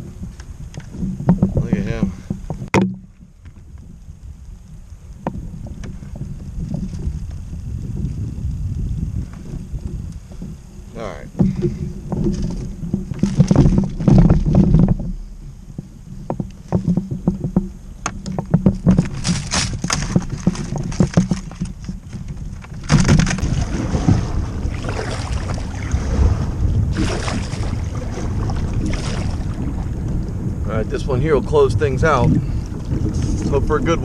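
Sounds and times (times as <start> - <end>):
rush of wind and water: 0.0 - 34.0
kayak knocks and splashes: 0.2 - 3.6, 11.2 - 30.5.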